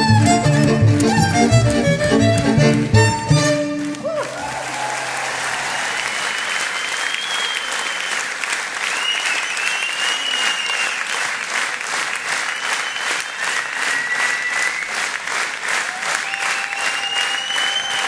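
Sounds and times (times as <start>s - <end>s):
audience applauding: 2.4s - 18.0s
long even-pitched whistles: 6.3s - 8.3s, 8.9s - 11.1s, 12.5s - 15.0s, 16.3s - 18.0s.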